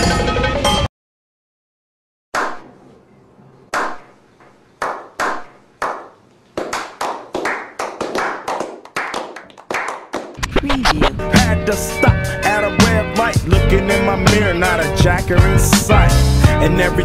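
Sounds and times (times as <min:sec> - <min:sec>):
group slow-clapping: 0:04.8 - 0:10.5.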